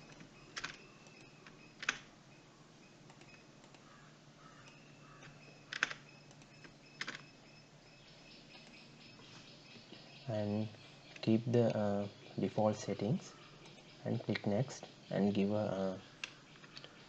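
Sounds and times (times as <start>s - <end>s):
mouse and keyboard clicks: 0.0s - 2.1s, 3.1s - 3.8s, 4.6s - 7.3s
faint steady hum: 0.0s - 17.0s.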